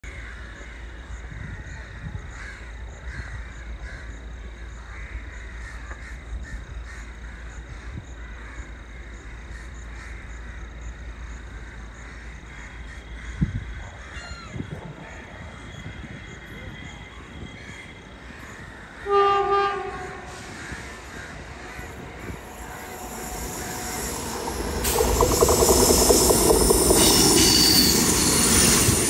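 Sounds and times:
wind rumble on microphone: 0:01.1 - 0:03.6, 0:13.2 - 0:18.9, 0:19.7 - 0:29.0
birds calling: 0:17.5 - 0:29.0.

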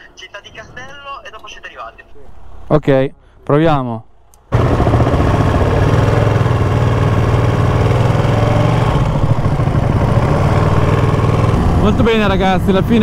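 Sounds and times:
motorcycle engine at low revs: 0:04.5 - 0:13.0.

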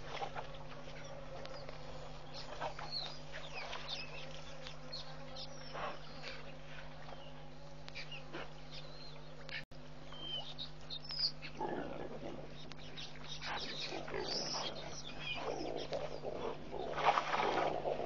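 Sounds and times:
birds chirping: 0:00.0 - 0:17.2
steady electrical hum: 0:00.0 - 0:18.0
elephants growling: 0:13.5 - 0:18.0.

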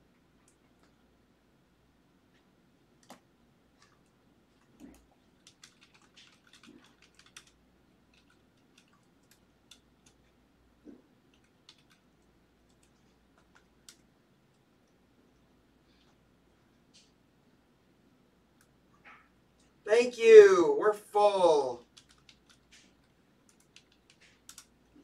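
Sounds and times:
computer keyboard typing: 0:03.8 - 0:10.4, 0:11.3 - 0:14.6, 0:21.8 - 0:25.0.

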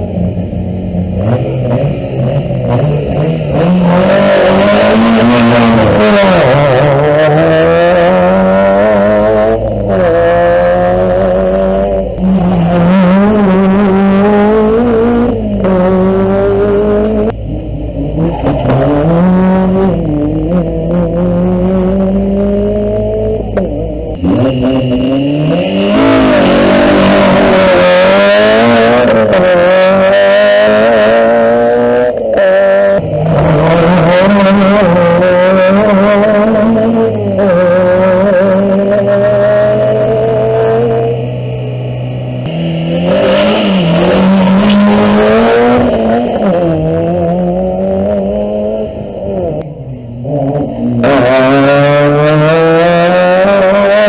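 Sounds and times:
rally car engine revving: 0:00.0 - 0:54.0.

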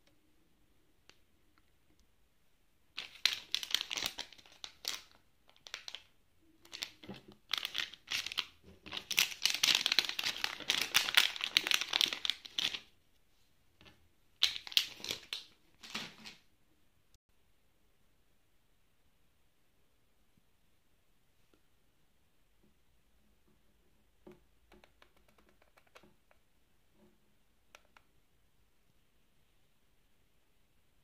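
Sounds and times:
plastic bag crinkling: 0:03.0 - 0:12.9.

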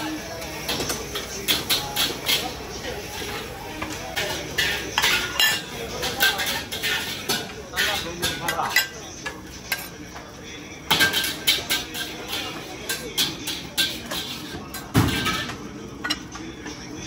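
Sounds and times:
background chatter: 0:00.0 - 0:17.0
spatula clanking on a steel wok: 0:10.9 - 0:16.2.

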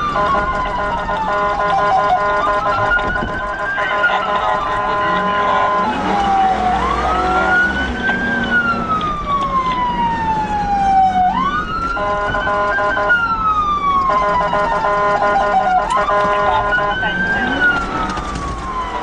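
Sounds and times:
police siren wailing: 0:00.0 - 0:19.0
road noise: 0:00.0 - 0:19.0
steady multi-tone siren: 0:00.0 - 0:19.0.

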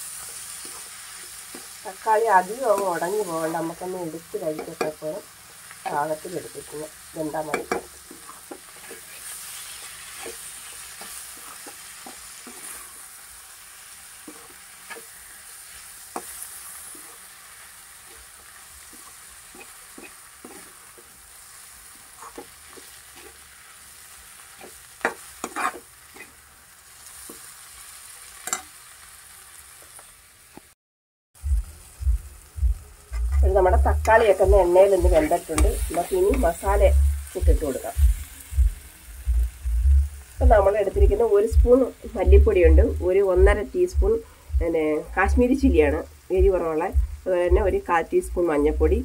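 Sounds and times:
vegetables sizzling in oil: 0:00.0 - 0:30.8, 0:31.4 - 0:49.0
spoon knocking on pan: 0:07.5 - 0:08.7
metal spoon scraping pan: 0:07.5 - 0:13.0, 0:14.1 - 0:21.1, 0:22.0 - 0:23.4, 0:24.4 - 0:26.4, 0:28.4 - 0:28.7.

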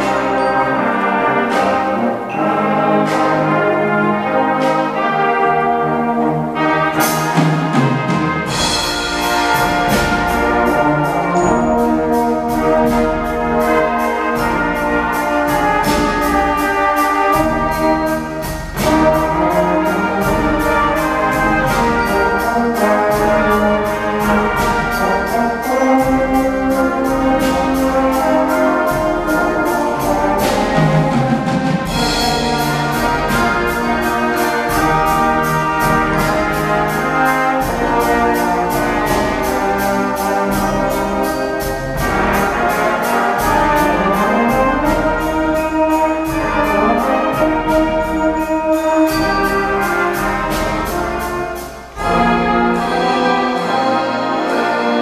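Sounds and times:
brass band playing: 0:00.0 - 0:55.0.

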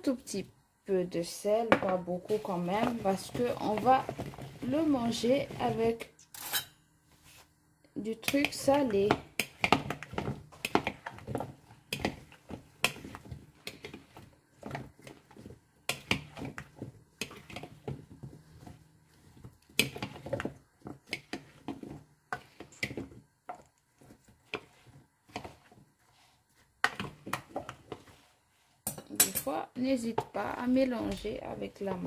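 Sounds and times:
cutlery scraping a bowl: 0:06.4 - 0:06.8.

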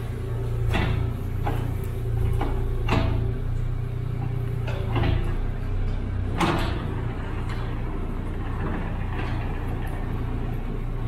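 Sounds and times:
excavator engine running: 0:00.0 - 0:11.0.

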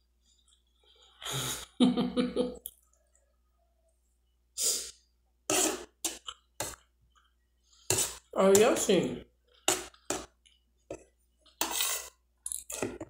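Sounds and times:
sharp breath through nose: 0:04.6 - 0:05.0.

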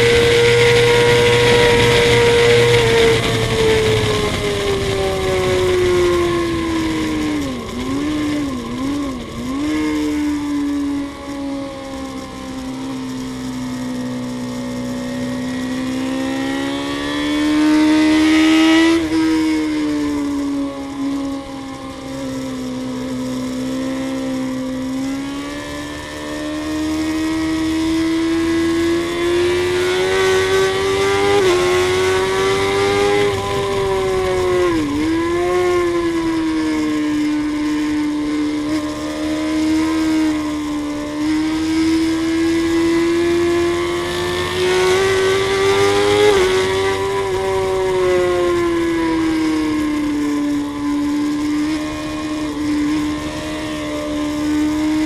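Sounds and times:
wind rush: 0:00.0 - 0:10.4, 0:28.9 - 0:39.0
motorcycle engine at high revs: 0:00.0 - 0:55.0.

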